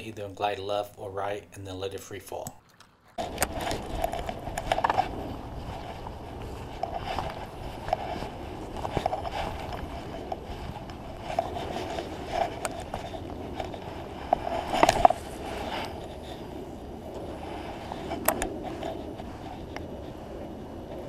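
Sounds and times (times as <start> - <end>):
clothing rubbing on microphone: 3.2 - 21.0.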